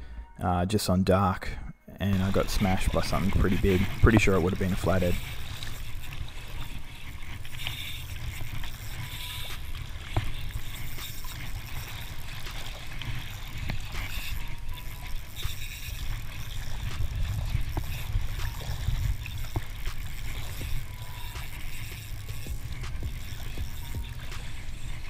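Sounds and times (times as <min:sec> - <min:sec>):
fishing reel line roller scratching: 0:02.0 - 0:25.0
water lapping: 0:02.0 - 0:25.0.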